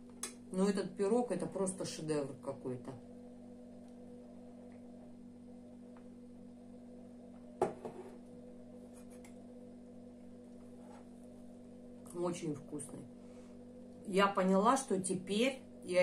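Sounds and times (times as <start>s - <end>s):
low electrical hum: 0.0s - 16.0s
glass mug set down on table: 7.6s - 8.2s.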